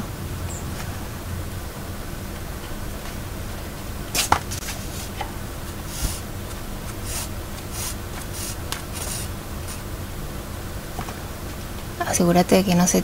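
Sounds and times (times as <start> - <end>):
thread rasping through paper: 5.9 - 9.8.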